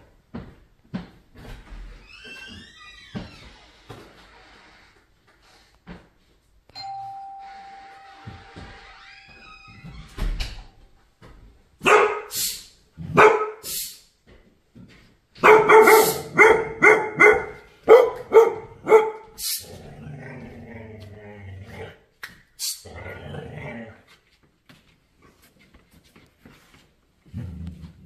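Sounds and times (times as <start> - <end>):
dog barking: 11.8 - 13.8, 15.4 - 19.4.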